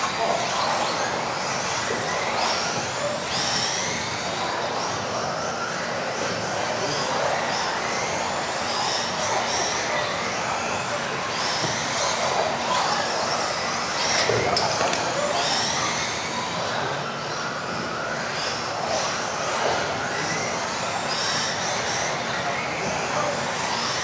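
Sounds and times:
rc car motors whining: 0.0s - 24.0s.

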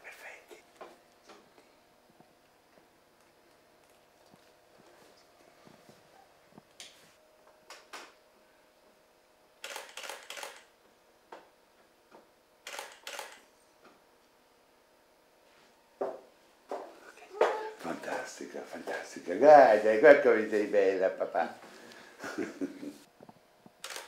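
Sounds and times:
camera shutter firing: 9.6s - 10.7s, 12.6s - 13.4s.

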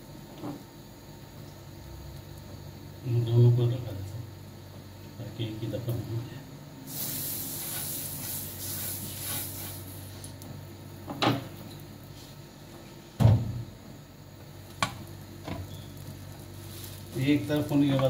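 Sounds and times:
grill pan sizzling: 6.8s - 10.7s, 15.9s - 18.0s.

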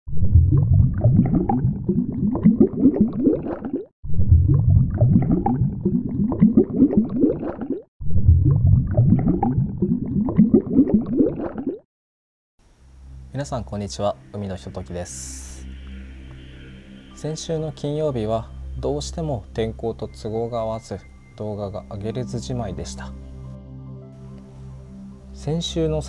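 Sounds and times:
underwater bubbling and gurgling: 0.1s - 11.8s.

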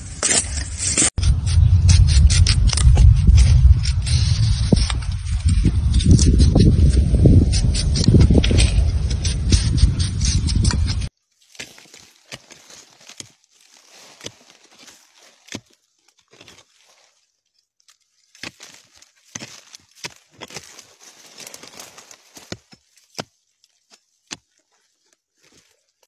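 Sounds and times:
blade scraping dry soil: 0.0s - 26.0s.

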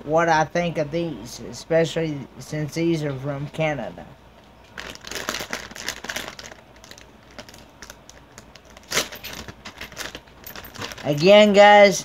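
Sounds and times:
chip bag crinkling: 4.7s - 11.6s.

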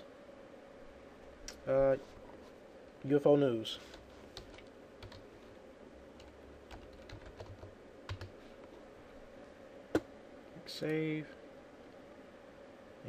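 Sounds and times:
keyboard typing: 3.9s - 5.2s, 6.2s - 8.3s.

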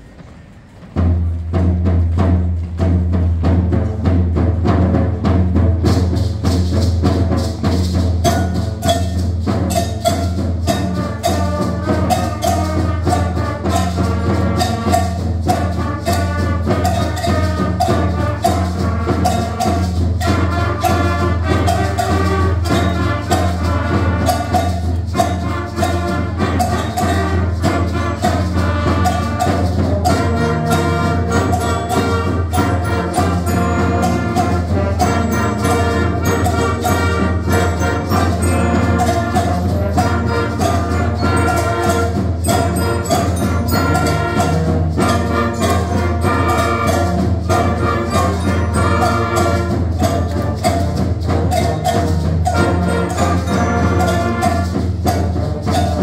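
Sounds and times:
concert band playing: 0.0s - 56.0s.

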